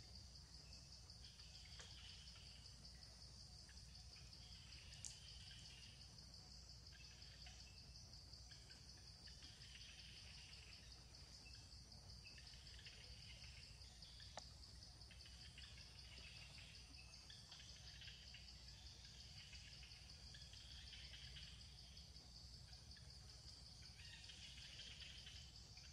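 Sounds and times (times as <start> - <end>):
faint chirps: 0.0 - 25.9
insects chirring: 0.0 - 25.9
faint click: 5.0 - 5.3, 14.3 - 14.5.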